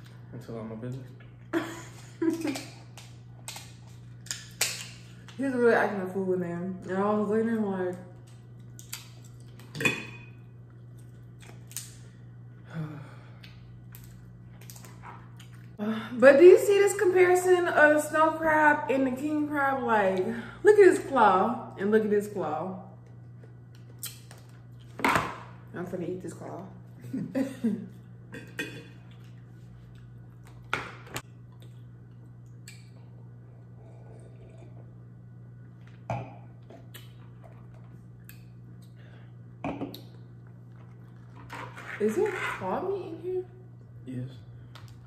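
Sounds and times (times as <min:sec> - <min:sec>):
steady low hum: 0:00.0 - 0:45.0.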